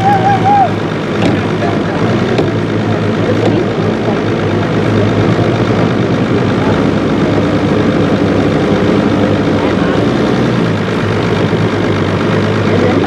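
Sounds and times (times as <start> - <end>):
motorboat engine idling: 0.0 - 13.0.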